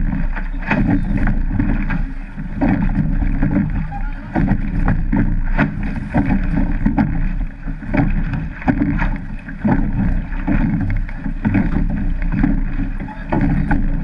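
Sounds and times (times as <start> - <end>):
oars knocking in rowlocks: 0.0 - 14.0
water rushing along hull: 0.0 - 14.0
wind buffeting microphone: 0.0 - 14.0.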